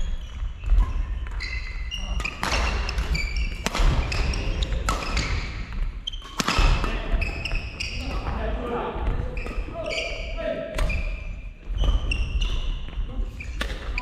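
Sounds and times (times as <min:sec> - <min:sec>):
sneakers squeaking on court: 0:00.0 - 0:14.0
racket striking shuttlecock: 0:02.3 - 0:05.5, 0:06.2 - 0:07.0.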